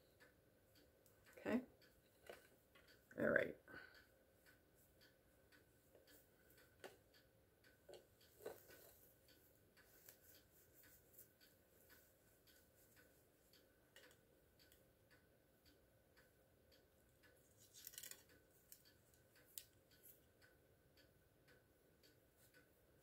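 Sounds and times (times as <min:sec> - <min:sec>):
faint ticks: 0:00.0 - 0:23.0
soft rustle of hair: 0:08.2 - 0:13.7.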